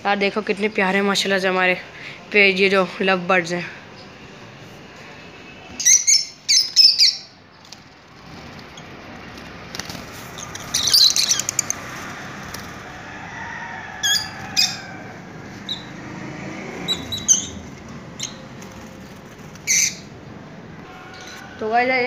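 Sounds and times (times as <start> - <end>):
lovebirds chirping: 5.8 - 12.2, 16.8 - 20.2.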